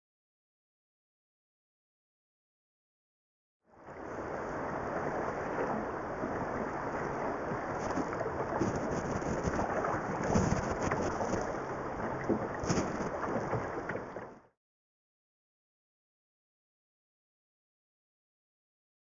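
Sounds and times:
wind buffeting microphone: 0:03.8 - 0:14.1
river water rushing: 0:03.8 - 0:14.2.

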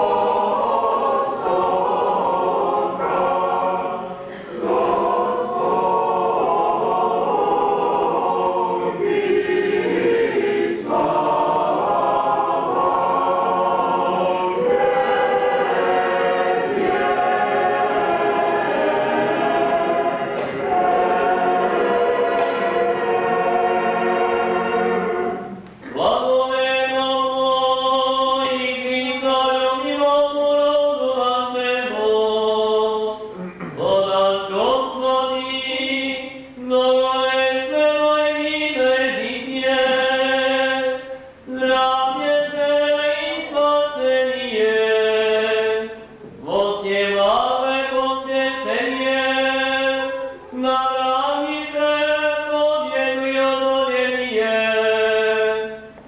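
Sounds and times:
choir singing a cappella chant: 0:00.0 - 0:56.0.

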